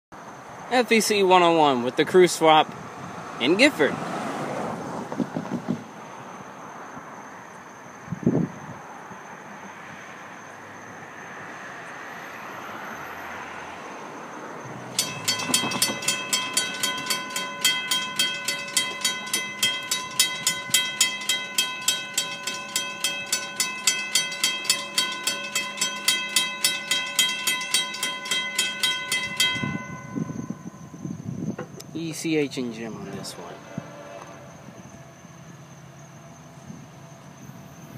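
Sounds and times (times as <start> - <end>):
train approaching rumble: 14.6 - 37.9
crossing bell ringing rapidly: 14.9 - 31.3.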